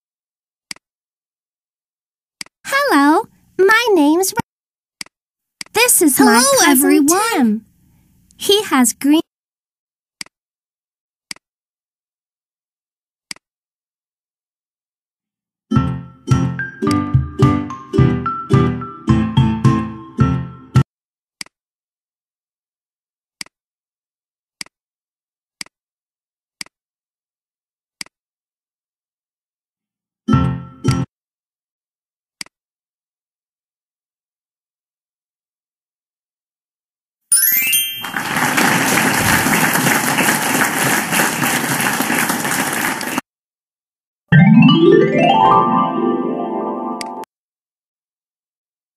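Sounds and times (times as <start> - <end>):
recorded applause: 37.6 - 43.2.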